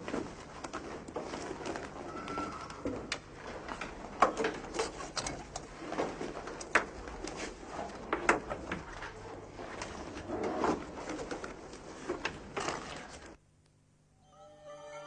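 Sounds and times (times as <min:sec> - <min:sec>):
school bag being rummaged through: 0:00.0 - 0:03.0.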